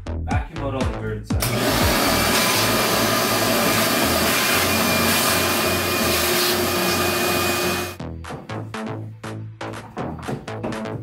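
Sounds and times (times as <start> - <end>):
shop vacuum running: 1.4 - 8.0.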